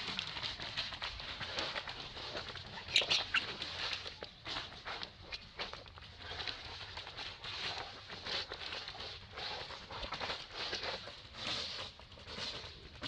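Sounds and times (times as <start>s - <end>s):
dry leaves rustling: 0.0s - 13.0s.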